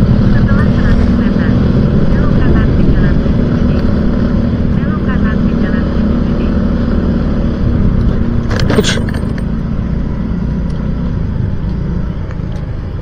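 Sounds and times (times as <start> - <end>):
motorcycle engine running: 0.0 - 13.0
rattling noise: 7.7 - 12.8.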